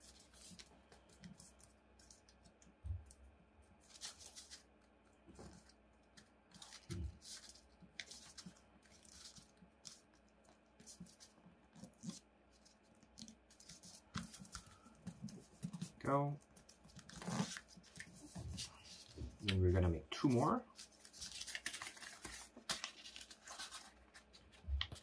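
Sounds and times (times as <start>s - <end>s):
paper rustling and crinkling: 3.8s - 4.7s, 5.3s - 10.2s, 10.8s - 25.0s.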